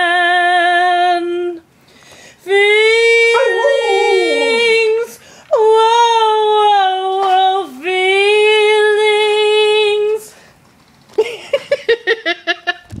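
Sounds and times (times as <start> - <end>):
woman humming: 2.5 - 7.8.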